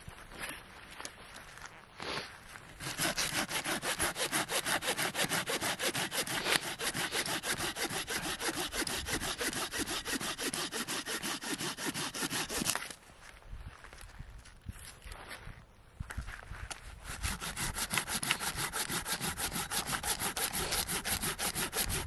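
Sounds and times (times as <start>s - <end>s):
hand saw cutting branch: 2.8s - 13.0s, 17.0s - 22.0s.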